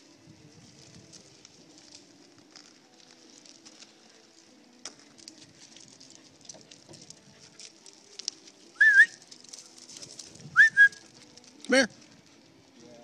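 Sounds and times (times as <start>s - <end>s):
faint crackling: 0.0s - 13.0s
person whistling: 8.8s - 9.2s, 10.5s - 11.1s.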